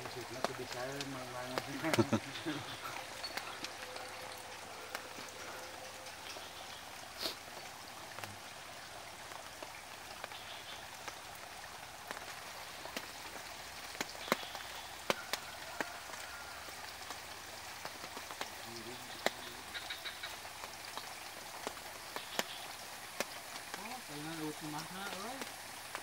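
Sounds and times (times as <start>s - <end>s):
steady hiss: 0.0s - 26.0s
faint ticks and clicks: 12.0s - 26.0s.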